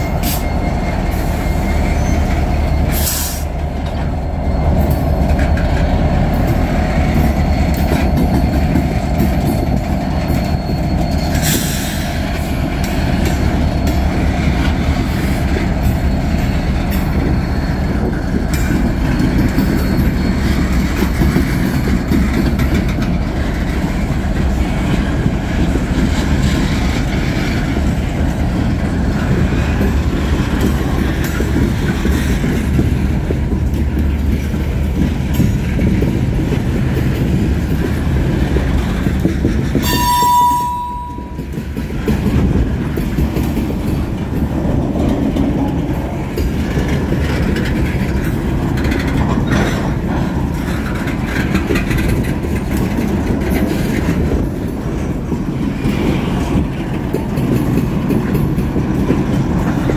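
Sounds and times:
high wheel squeal: 0:00.0 - 0:05.8, 0:06.8 - 0:21.4
train wheels rumbling on rails: 0:00.0 - 0:59.9.

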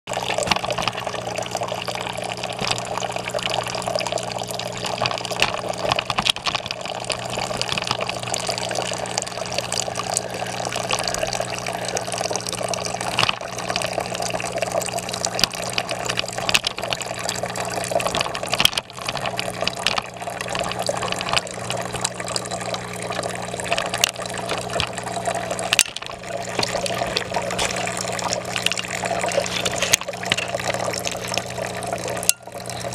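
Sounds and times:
fountain water trickling over stone: 0:00.1 - 0:32.9
low steady hum: 0:00.1 - 0:32.9.

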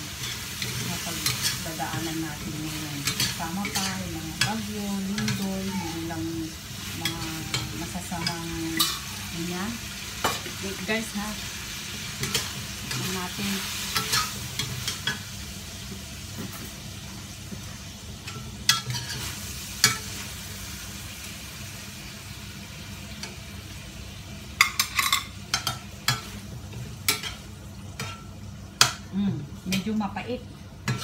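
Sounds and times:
food sizzling in a wok: 0:00.0 - 0:31.0
metal spatula scraping wok: 0:18.3 - 0:20.2.

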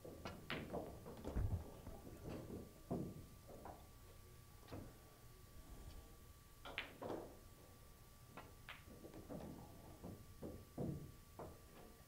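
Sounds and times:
pool balls clicking: 0:06.6 - 0:07.4.

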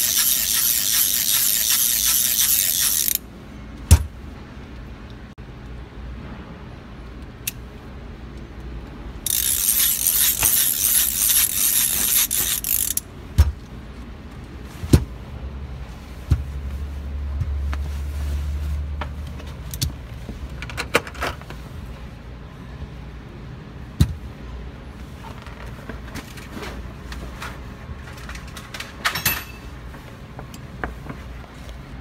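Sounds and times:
ratchet clicking rattle: 0:00.0 - 0:03.2, 0:09.2 - 0:13.1
metal tools clinking: 0:28.1 - 0:29.8.

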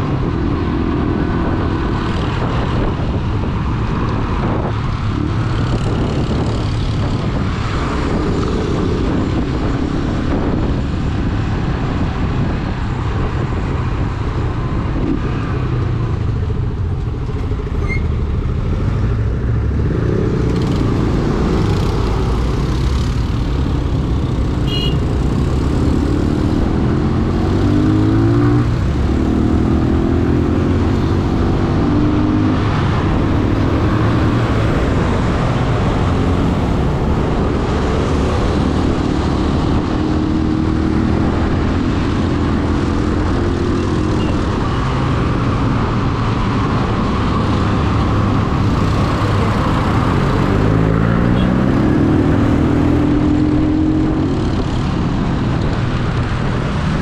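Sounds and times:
wind rumble on microphone: 0:00.0 - 0:57.0.

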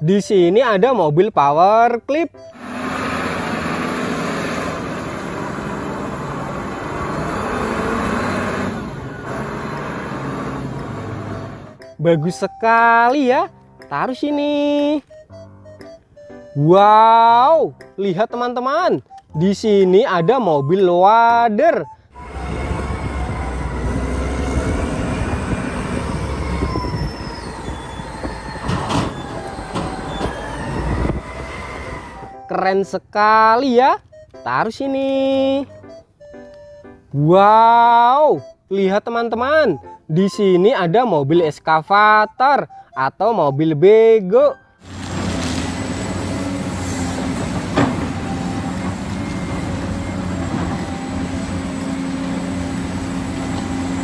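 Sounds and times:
forklift engine humming: 0:02.4 - 0:12.8, 0:21.8 - 0:32.5, 0:44.8 - 0:54.0
high wavering squeal: 0:22.2 - 0:32.5.

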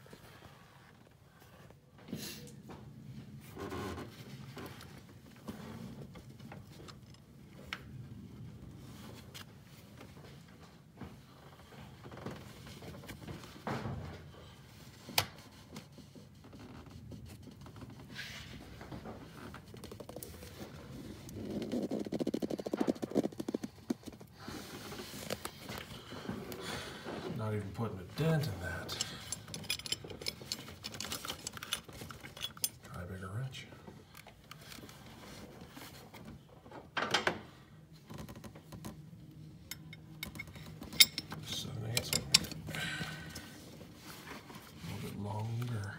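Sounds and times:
hand tools being handled: 0:28.4 - 0:32.9, 0:39.7 - 0:42.8
wrench metal clicks and clinks: 0:28.9 - 0:32.8, 0:39.7 - 0:42.8.

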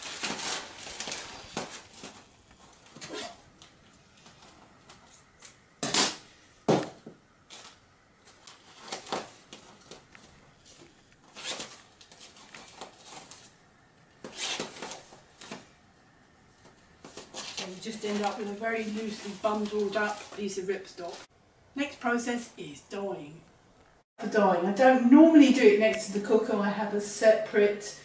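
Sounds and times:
nylon fabric rustling: 0:00.0 - 0:05.3, 0:07.4 - 0:13.6, 0:14.2 - 0:15.8, 0:16.4 - 0:21.3.

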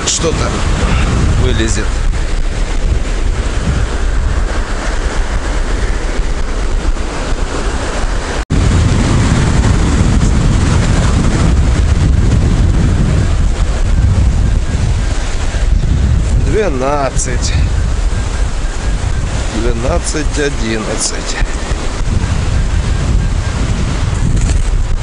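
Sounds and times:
surf breaking on beach: 0:00.0 - 0:25.0
wind buffeting microphone: 0:00.0 - 0:25.0.

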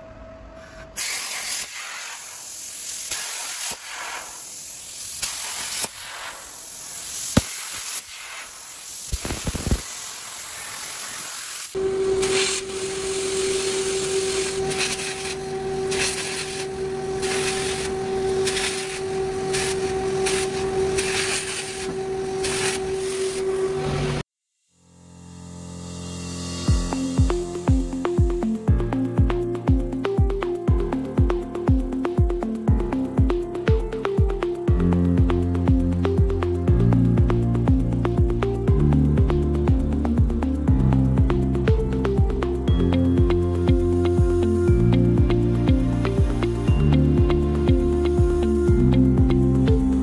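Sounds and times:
plasma cutter hissing: 0:00.6 - 0:23.9
steady hum: 0:11.8 - 0:24.2.

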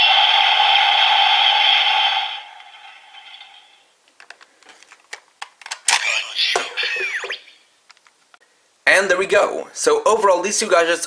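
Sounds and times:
electronic toy sound effect blast: 0:05.9 - 0:07.6.

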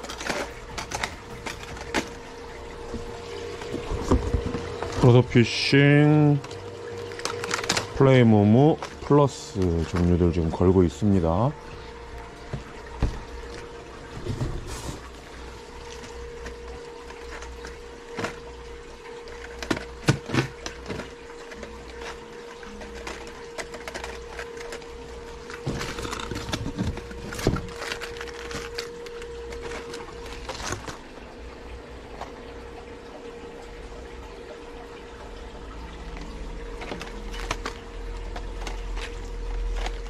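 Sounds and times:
plastic packaging clicks and crinkles: 0:00.0 - 0:02.5, 0:06.4 - 0:31.1, 0:36.0 - 0:40.0
constant hum: 0:00.0 - 0:40.0
water trickling: 0:00.0 - 0:40.0.

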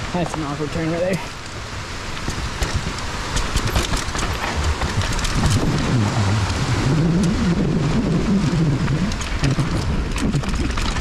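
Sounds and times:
bike rattling and clicking: 0:00.0 - 0:11.0
bike tyres on dirt: 0:00.0 - 0:11.0
low wavering hum: 0:01.3 - 0:11.0.

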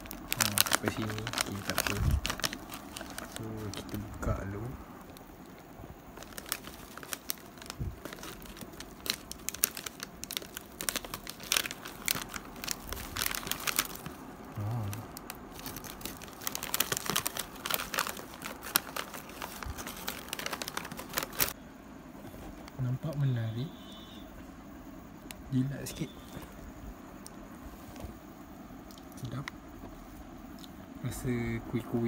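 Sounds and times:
plastic wrapping crinkling: 0:00.0 - 0:21.6.

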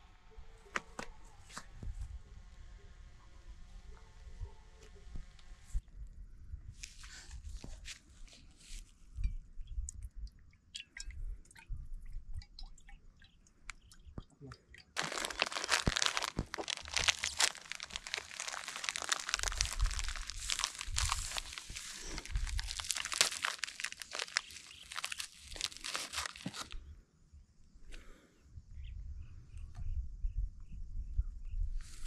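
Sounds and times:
material crinkling and crunching: 0:15.0 - 0:26.8.

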